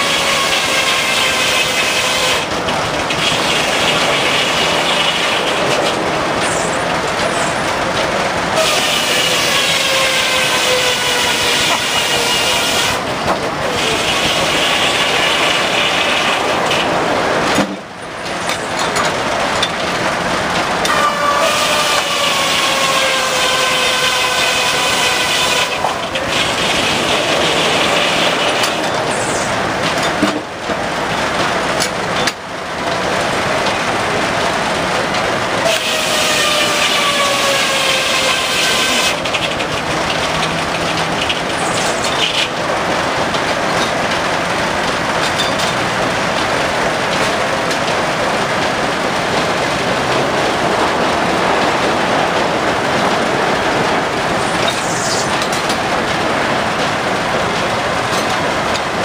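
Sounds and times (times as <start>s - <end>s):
saw blade whining through wood: 0.0s - 2.5s, 8.6s - 16.9s, 20.8s - 29.5s, 35.6s - 39.4s
sawmill clatter: 0.0s - 59.0s.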